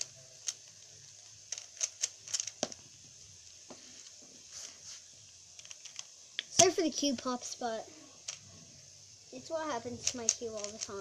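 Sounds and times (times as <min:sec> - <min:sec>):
puzzle cube clicking turns: 0:00.0 - 0:04.2, 0:05.4 - 0:06.9, 0:08.2 - 0:08.6, 0:09.8 - 0:11.0.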